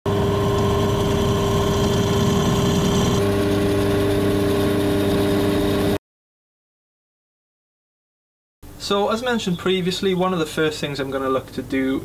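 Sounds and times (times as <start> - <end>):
drill bit cutting metal: 0.1 - 5.8
drill motor hum: 0.1 - 6.0.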